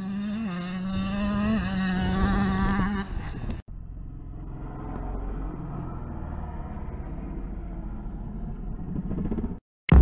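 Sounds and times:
dirt bike engine running: 0.0s - 9.6s
low steady rumble: 3.1s - 9.6s.

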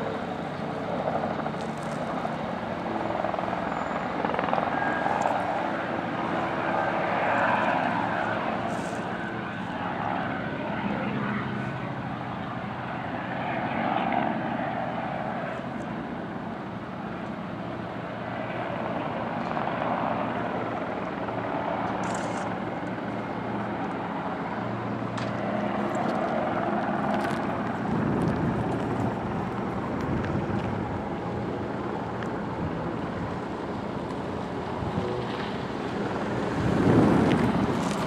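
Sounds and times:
steady engine drone: 0.0s - 38.0s
wind buffeting the microphone: 25.4s - 38.0s.

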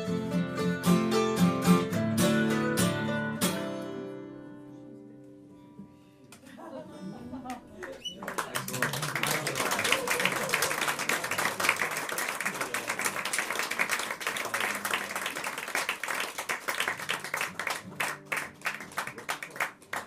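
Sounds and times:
audience applauding: 7.8s - 20.0s.

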